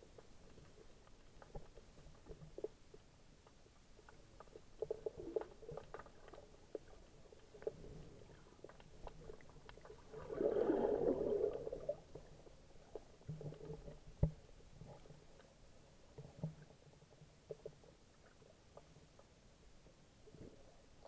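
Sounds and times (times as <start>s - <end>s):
small underwater clicks and crackles: 0.0s - 21.0s
surge of rushing crackling water: 4.0s - 14.2s
muffled underwater rush: 9.3s - 13.2s.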